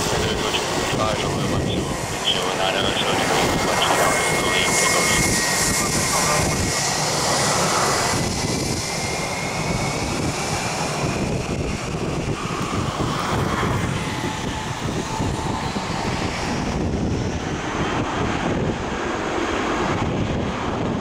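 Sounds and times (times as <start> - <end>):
jet engines rumbling: 0.0 - 21.0.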